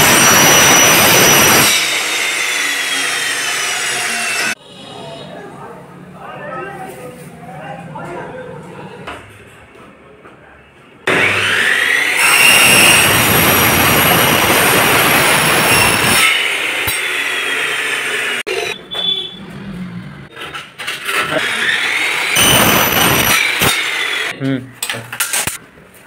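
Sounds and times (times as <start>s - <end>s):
miter saw cutting aluminium: 0.0s - 4.6s, 11.1s - 18.8s, 20.9s - 24.3s.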